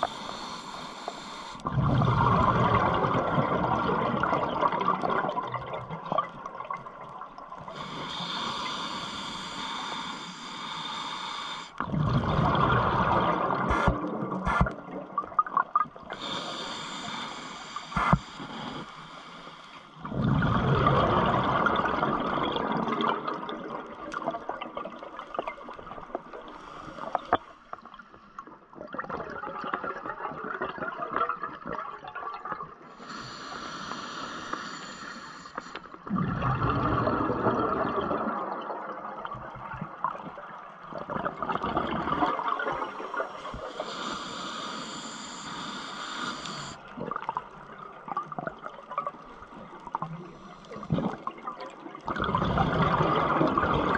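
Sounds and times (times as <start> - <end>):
regulator inhalation hiss: 0.0 - 1.6, 7.8 - 11.8, 16.1 - 20.0, 33.0 - 35.9, 43.1 - 46.8
regulator bubbling exhalations: 0.0 - 5.8, 11.8 - 15.0.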